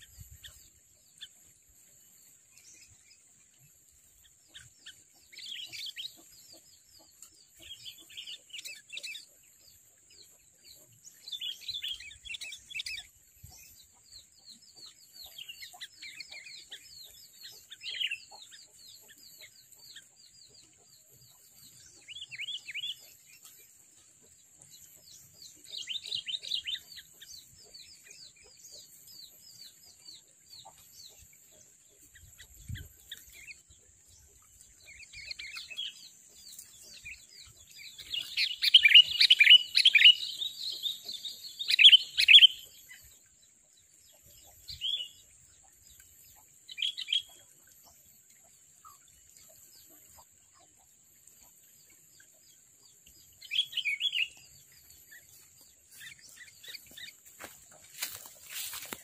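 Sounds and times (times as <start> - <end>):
bulbuls chirping: 4.1 - 43.3, 53.2 - 59.0.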